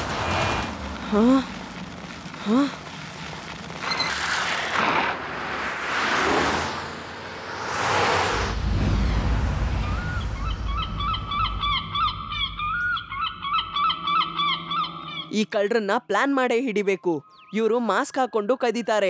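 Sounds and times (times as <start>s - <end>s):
low rumble: 7.4s - 15.2s
bird chirping: 9.8s - 15.5s, 16.7s - 19.0s.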